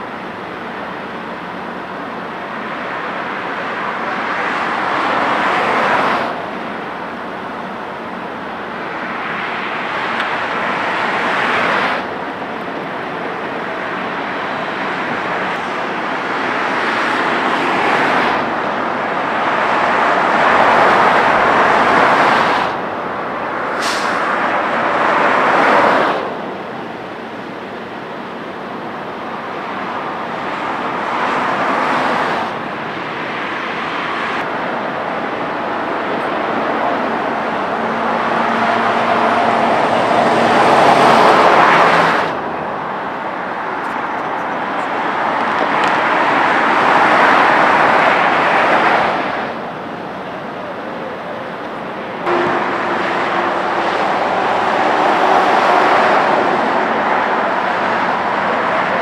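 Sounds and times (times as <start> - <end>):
freeway traffic passing: 0.0 - 59.0.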